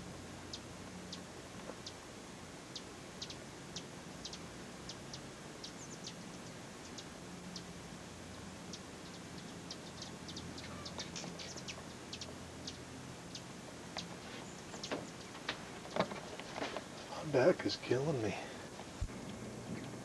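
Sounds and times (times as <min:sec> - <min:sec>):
hummingbird chip notes: 0:00.0 - 0:15.4.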